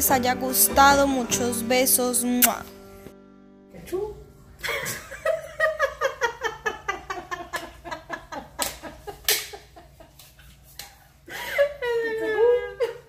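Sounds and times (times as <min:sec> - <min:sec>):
person laughing: 0:04.6 - 0:10.3, 0:11.3 - 0:13.0.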